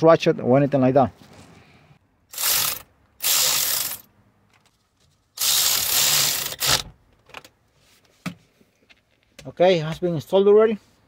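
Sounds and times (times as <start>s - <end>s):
cordless ratchet running: 2.3s - 4.1s, 5.4s - 6.8s.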